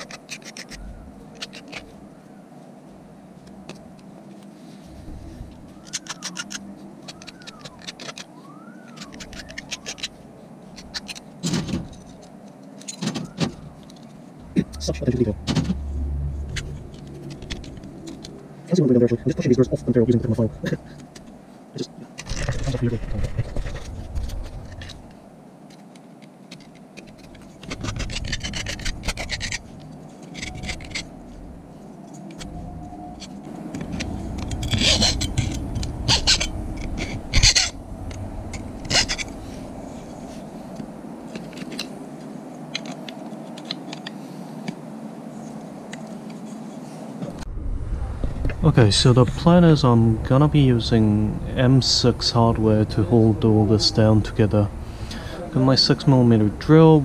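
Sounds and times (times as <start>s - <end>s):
aluminium pieces clinking: 0.0s - 2.1s, 5.8s - 15.1s, 16.4s - 18.4s, 22.1s - 44.2s.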